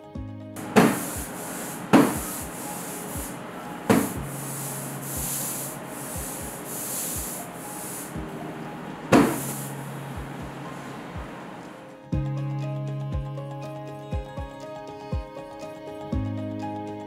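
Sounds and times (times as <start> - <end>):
sharp knocks: 0.6 - 4.4, 9.1 - 9.5
ink roller hissing: 0.6 - 12.0.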